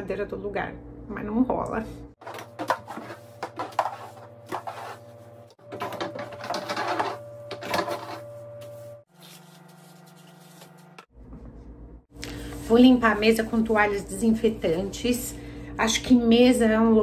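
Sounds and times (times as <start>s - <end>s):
stick scraping and knocking: 2.2s - 8.3s
steady low hum: 10.2s - 17.0s.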